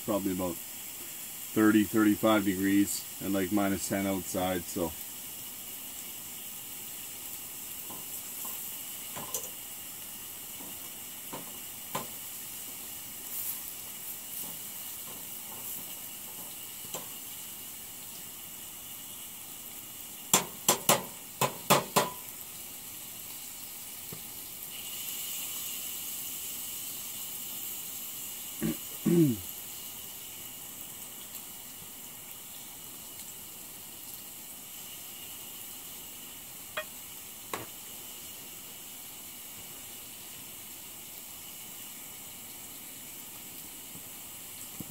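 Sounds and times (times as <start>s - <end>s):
gas burner hiss: 0.0s - 44.9s
onions sizzling in a frying pan: 0.0s - 44.9s
fork tapping a pan: 20.3s - 22.2s.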